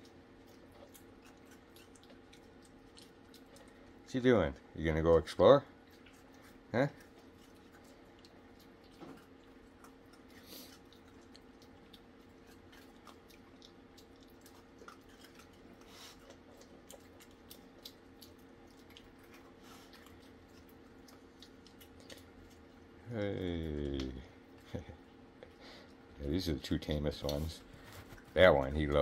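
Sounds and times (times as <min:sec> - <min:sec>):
animals chewing and crunching: 0:00.0 - 0:29.0
steady low hum: 0:00.0 - 0:29.0.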